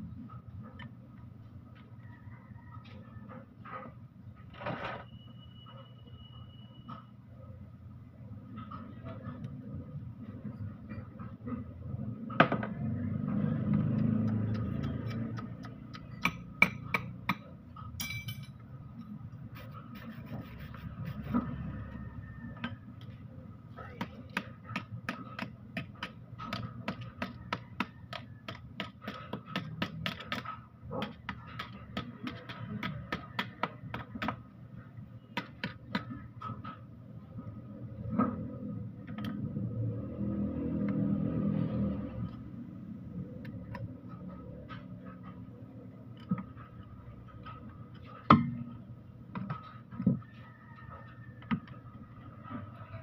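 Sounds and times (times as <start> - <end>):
low background hum: 0.0 - 53.0
metal tools tapping on metal housing: 16.1 - 18.6.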